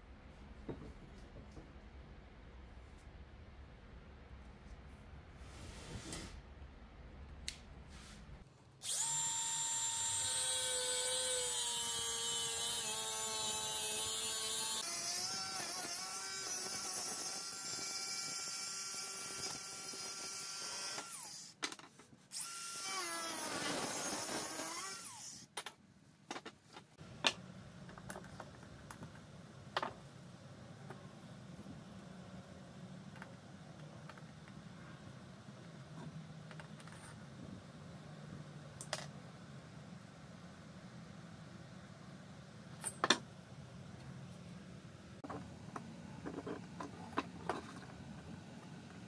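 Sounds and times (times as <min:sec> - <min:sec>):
angle grinder cutting steel: 0:08.8 - 0:21.5.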